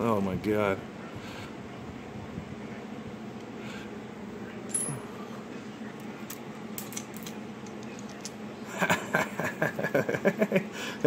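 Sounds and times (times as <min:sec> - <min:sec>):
steady background hum: 0:00.0 - 0:11.0
metal fragments clinking: 0:04.7 - 0:05.0.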